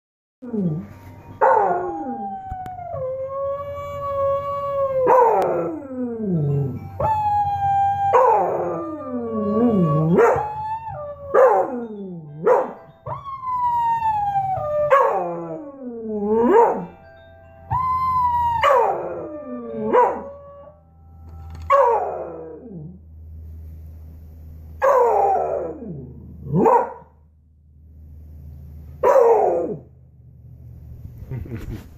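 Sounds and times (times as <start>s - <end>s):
dogs howling: 0.4s - 17.0s, 17.7s - 20.8s, 21.6s - 23.0s, 24.8s - 27.2s.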